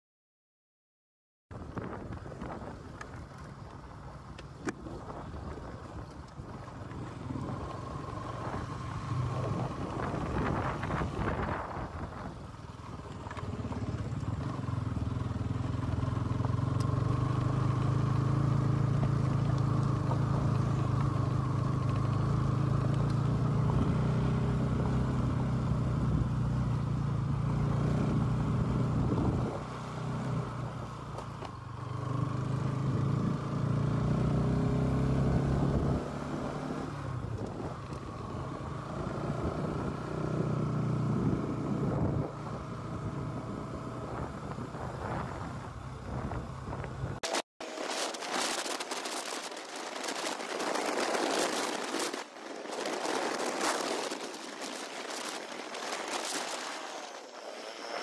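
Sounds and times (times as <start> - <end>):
motorcycle engine running: 1.6 - 58.0.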